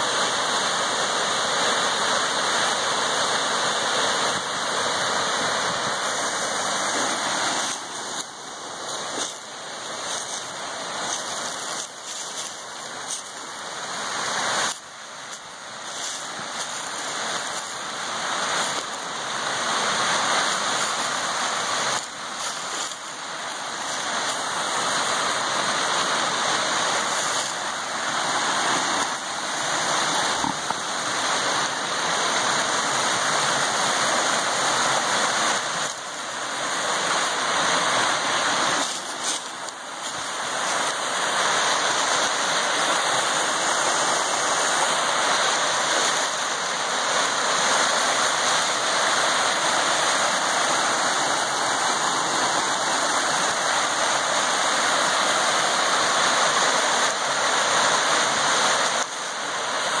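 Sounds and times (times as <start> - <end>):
waterfall rushing over rocks: 0.0 - 60.0.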